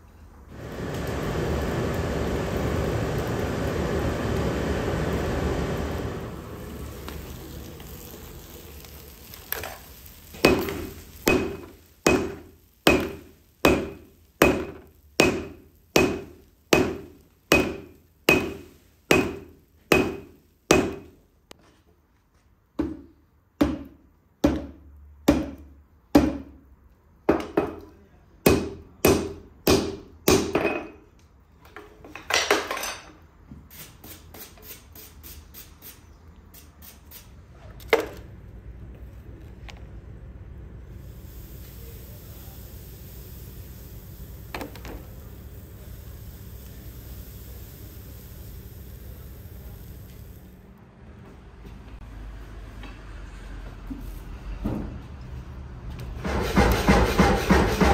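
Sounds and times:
hammer striking metal on anvil: 10.4s - 21.1s, 28.4s - 31.0s.

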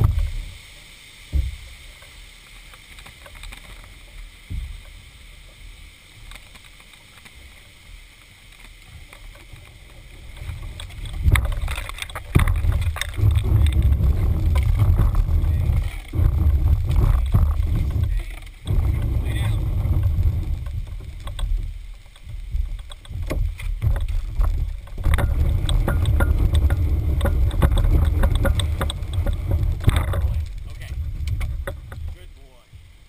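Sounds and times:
hull rumbling over pavement: 0.0s - 0.7s, 8.9s - 33.0s
knocks against canoe hull: 1.3s - 1.6s, 10.4s - 21.6s, 22.5s - 32.2s.

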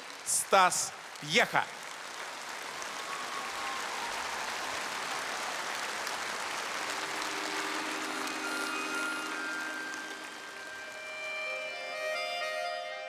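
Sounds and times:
large audience applauding: 0.0s - 12.9s
instrumental music introduction: 7.0s - 13.0s.

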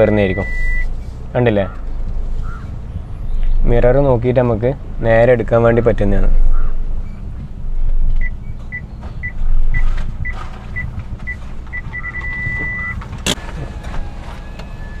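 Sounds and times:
parking sensor beeping: 0.0s - 1.0s, 7.0s - 15.0s
car engine idling: 0.0s - 15.0s.

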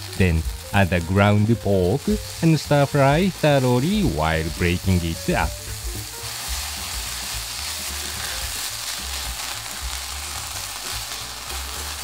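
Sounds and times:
meat sizzling in a frying pan: 0.0s - 12.0s
spatula stirring meat: 5.7s - 12.0s.

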